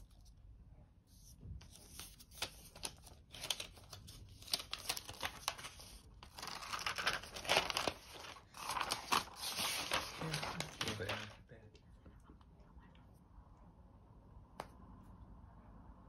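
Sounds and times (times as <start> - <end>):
plastic wrap crinkling: 2.0 - 11.4.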